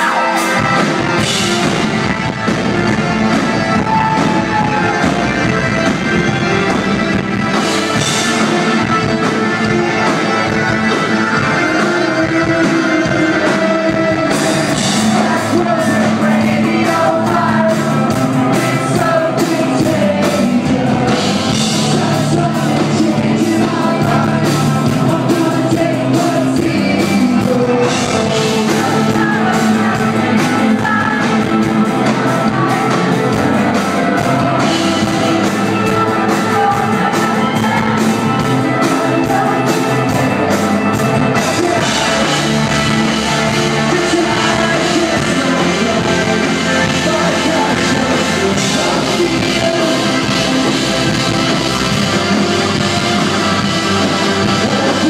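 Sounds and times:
live rock band playing: 0.0s - 55.0s
woman singing lead vocal: 12.0s - 40.4s.

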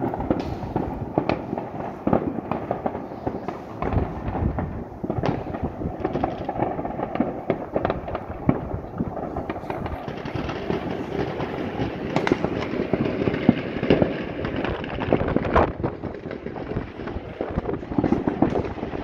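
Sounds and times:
fireworks crackling and popping: 0.0s - 19.0s
sharp firework bangs: 0.0s - 19.0s.

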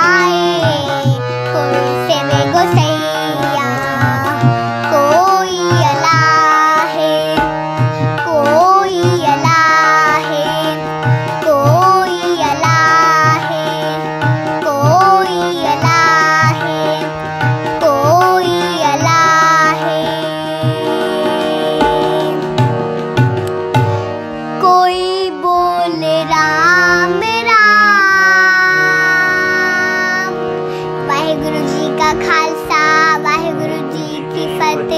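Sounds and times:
girl singing a hymn: 0.0s - 22.5s, 24.5s - 34.9s
tabla drums: 0.0s - 24.3s
harmonium chords: 0.0s - 34.9s.

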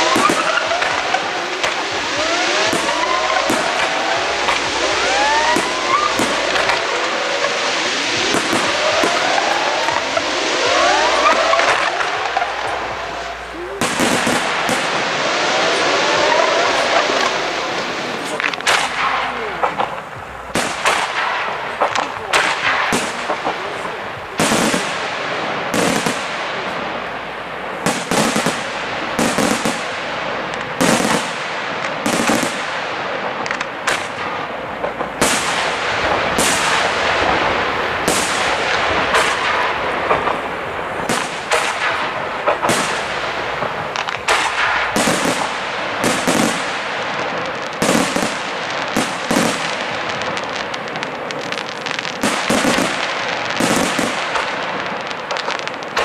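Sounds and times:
firework shells bursting: 0.0s - 56.0s.

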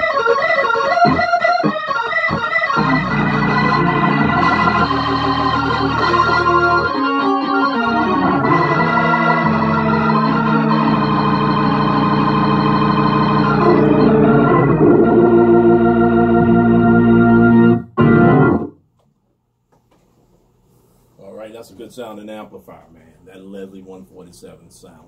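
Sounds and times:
organ chords over bass: 0.0s - 18.8s.

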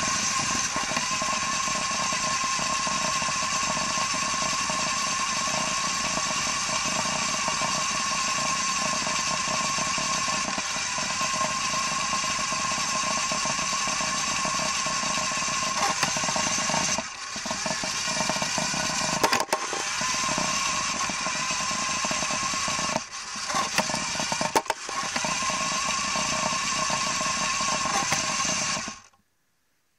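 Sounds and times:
toy car motor whining: 0.0s - 29.2s
sharp clicks: 19.0s - 20.0s, 22.8s - 25.4s.

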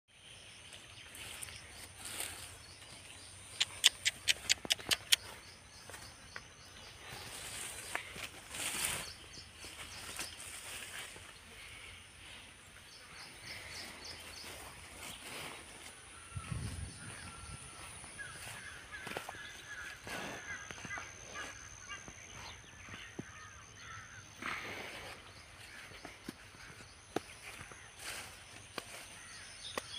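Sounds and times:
birds calling: 0.3s - 29.9s
sharp clicks: 3.6s - 5.2s.

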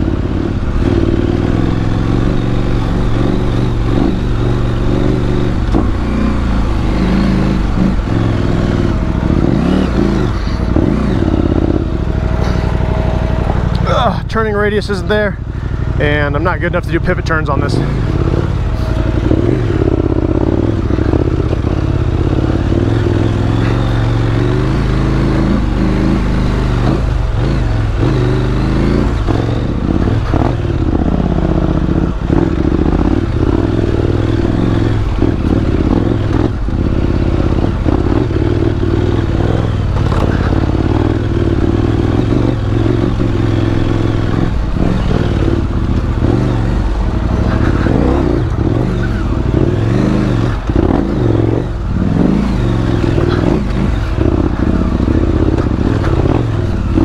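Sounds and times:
motorcycle engine revving: 0.0s - 57.0s
knocks and clatter over rocks: 39.9s - 40.5s.

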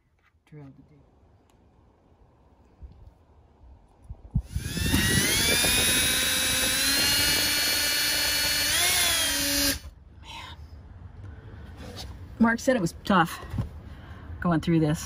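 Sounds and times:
power drill boring into metal: 4.4s - 9.9s.

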